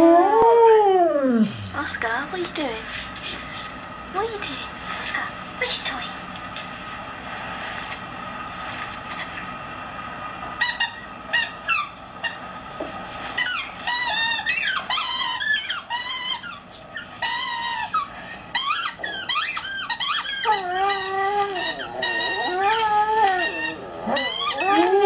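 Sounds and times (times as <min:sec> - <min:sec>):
dog whining and howling: 0:00.0 - 0:01.6, 0:13.4 - 0:25.0.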